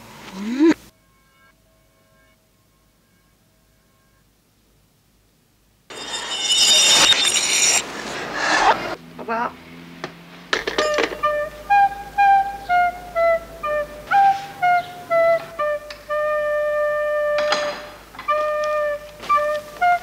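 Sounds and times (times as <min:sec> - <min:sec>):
flute-like wind instrument melody: 0:10.8 - 0:20.0.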